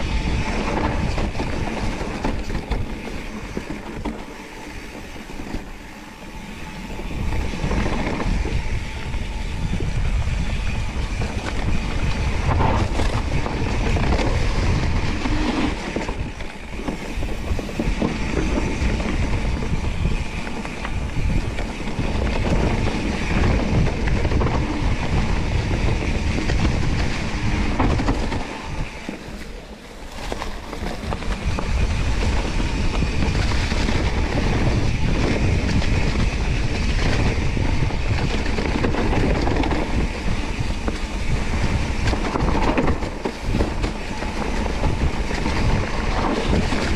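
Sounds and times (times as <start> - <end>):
bike rattles and knocks: 0.0 - 46.9
bike tyre and wind rumble: 0.0 - 46.9.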